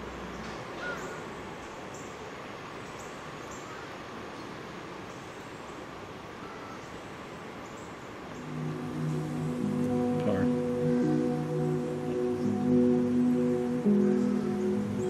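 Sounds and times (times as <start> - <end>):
background hiss: 0.0 - 15.0
soft sustained music: 8.3 - 15.0.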